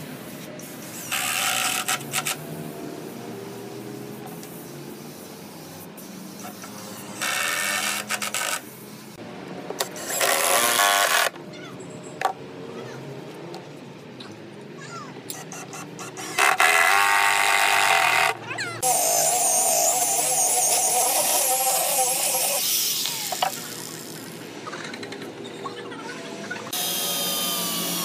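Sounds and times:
cordless drill into wood: 0:10.0 - 0:11.3, 0:16.2 - 0:23.6.

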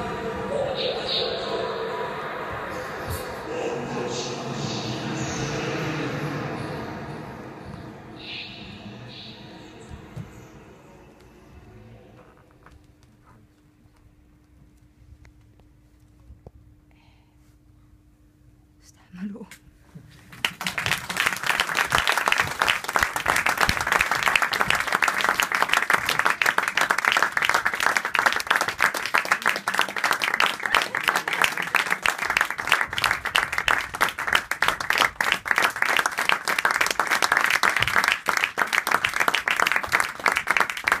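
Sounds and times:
audience applauding: 0:20.3 - 0:41.0.

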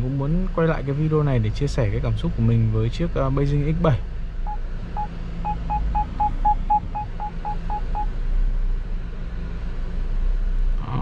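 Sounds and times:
steady low hum: 0:00.0 - 0:11.0
parking sensor beeps: 0:04.4 - 0:08.1.

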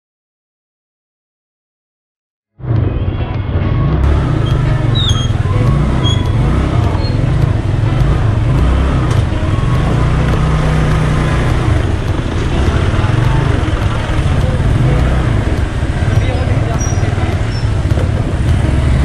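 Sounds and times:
scooter engine running: 0:02.7 - 0:19.0
high chirps: 0:04.0 - 0:19.0.

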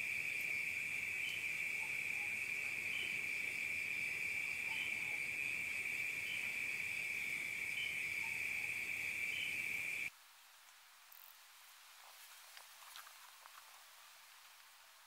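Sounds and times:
insects trilling: 0:00.0 - 0:10.1.

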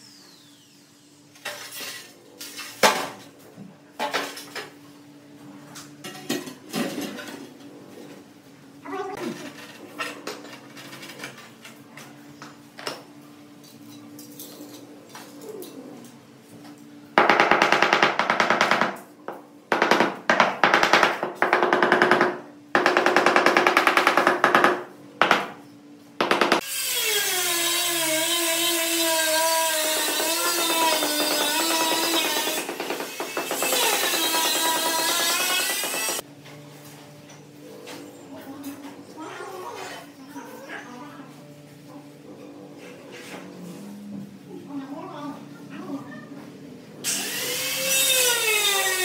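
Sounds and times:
power tool hammering rattle: 0:28.0 - 0:36.2.

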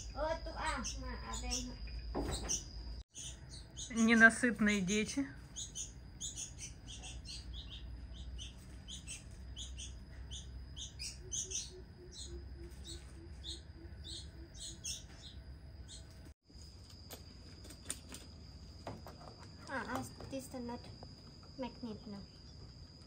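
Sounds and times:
nestlings chirping: 0:00.0 - 0:16.3.

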